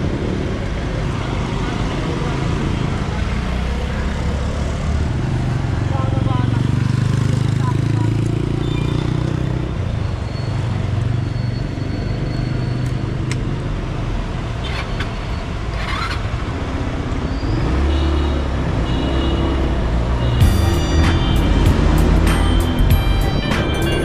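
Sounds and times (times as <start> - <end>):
road and wind noise: 0.0 - 24.0
motorcycle engine running: 20.4 - 24.0
short music sting: 20.4 - 24.0.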